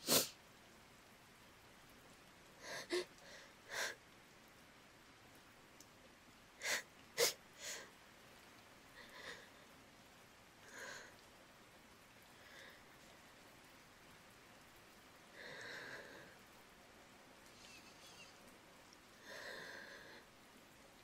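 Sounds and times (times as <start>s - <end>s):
woman sniffling tearfully: 2.6s - 4.0s, 6.6s - 7.9s, 17.6s - 18.4s.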